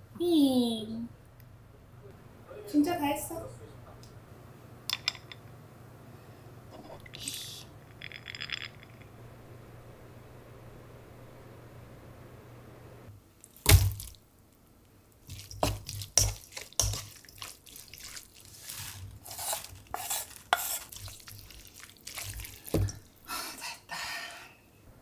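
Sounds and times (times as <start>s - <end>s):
wet squelching: 15.2s - 23.3s
utensil clinking in steel bowl: 15.3s - 23.1s.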